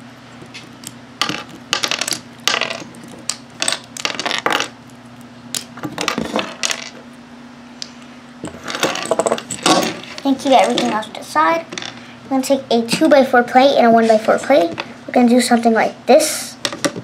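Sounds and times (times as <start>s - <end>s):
plastic bricks clicking and clattering: 0.6s - 4.7s.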